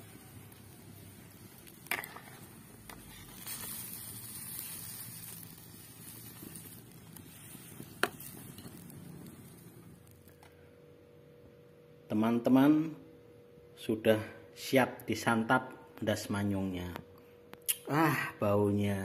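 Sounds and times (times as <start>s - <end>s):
ladle stirring in a wok: 0.0s - 9.6s
soft hiss: 0.0s - 19.0s.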